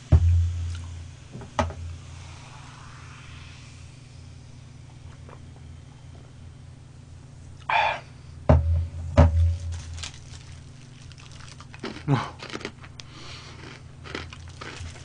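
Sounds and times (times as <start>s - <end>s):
heavy knock: 8.5s - 9.7s
food handling clicks and rustles: 9.4s - 15.0s
person chewing food: 9.7s - 15.0s.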